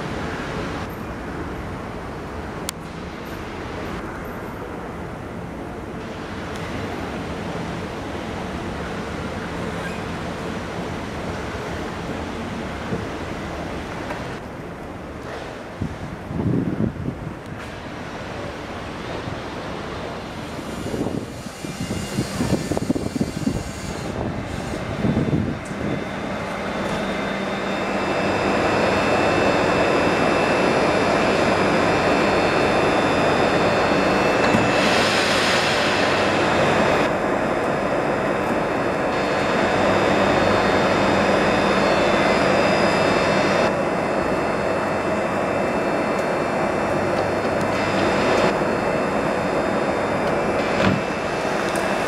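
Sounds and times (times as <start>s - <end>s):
train humming at platform: 0.0s - 52.0s
loud hiss: 20.4s - 25.2s.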